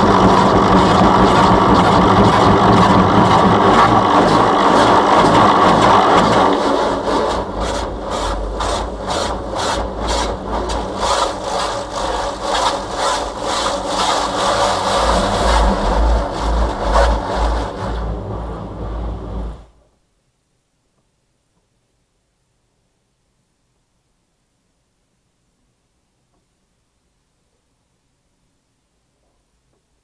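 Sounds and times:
low machine rumble: 0.0s - 19.9s.

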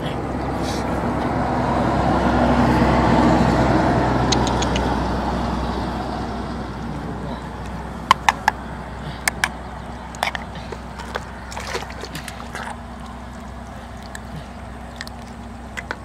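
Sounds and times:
steady low hum: 0.0s - 16.0s
snail shells clicking together: 4.3s - 4.9s, 9.2s - 11.3s, 14.9s - 16.0s
hands squelching in wet mud: 6.8s - 16.0s.

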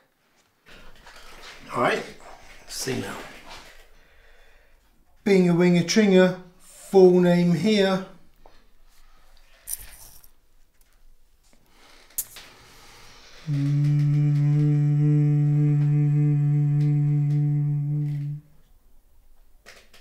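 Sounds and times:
man humming low note: 13.4s - 18.5s.

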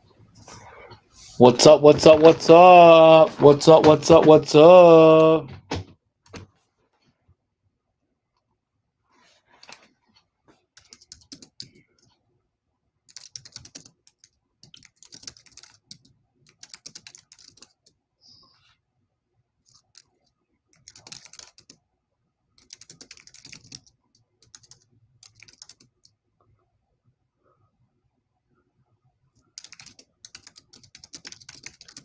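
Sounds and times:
computer keyboard typing: 10.8s - 12.1s, 13.1s - 18.0s, 19.7s - 21.8s, 22.6s - 26.2s, 29.4s - 32.0s.

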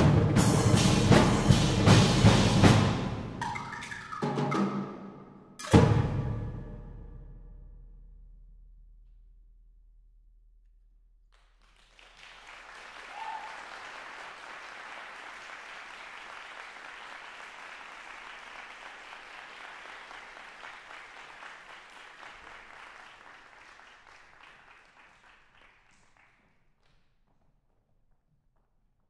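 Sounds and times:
audience applauding: 11.4s - 26.4s
brief cheer: 11.8s - 18.9s.

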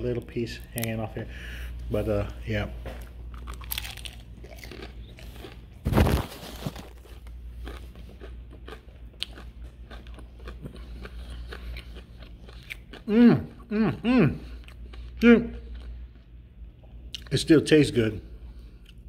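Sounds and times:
crunching and chewing fried chicken: 2.9s - 17.5s.

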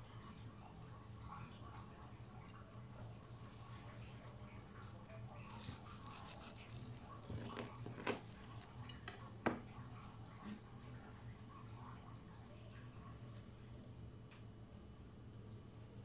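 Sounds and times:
crust crackling: 5.2s - 9.0s
knife cutting fried batter: 5.4s - 9.1s.

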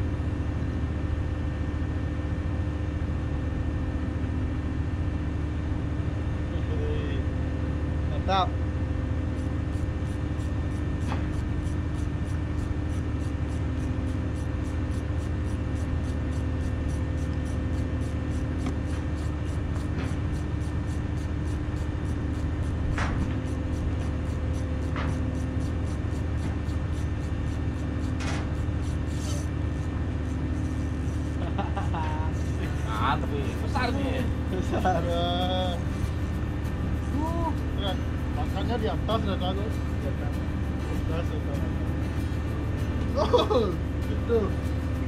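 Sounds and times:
boat machinery hum: 0.0s - 45.0s.

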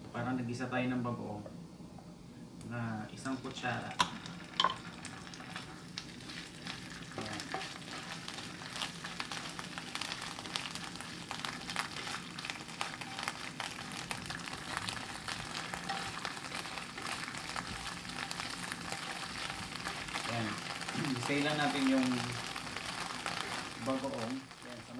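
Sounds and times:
garlic sizzling in hot oil: 3.2s - 24.9s
spatula scraping a pan: 7.4s - 9.5s, 11.8s - 20.8s.

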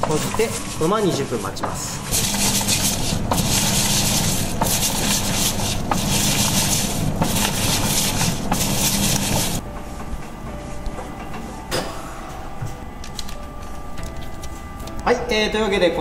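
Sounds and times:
brushes scrubbing in soapy water: 0.0s - 9.6s
motor hum: 0.0s - 14.9s.

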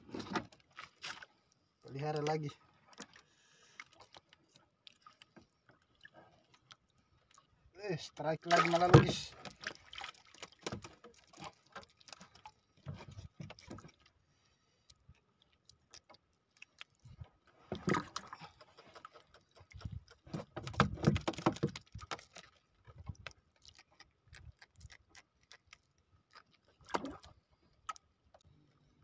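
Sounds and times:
knocking and rustling in boat: 0.0s - 1.2s, 8.5s - 14.0s, 17.5s - 23.2s.

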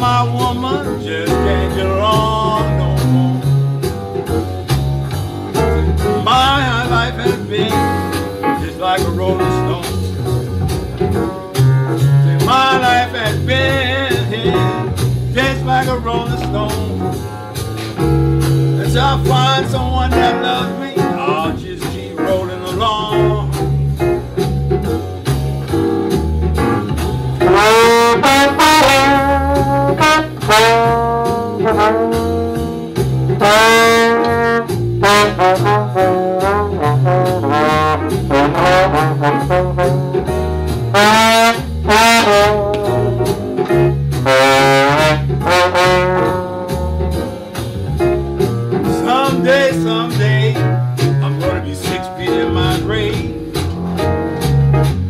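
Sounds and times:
steady bass line: 0.0s - 55.0s
trombone solo: 27.4s - 47.4s.

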